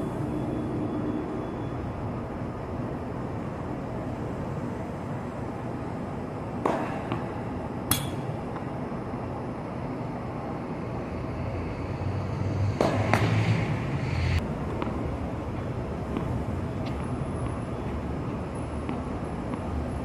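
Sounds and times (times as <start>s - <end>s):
low traffic hum: 0.0s - 20.0s
racket hitting ball: 6.6s - 7.3s, 7.9s - 8.3s, 12.8s - 13.4s.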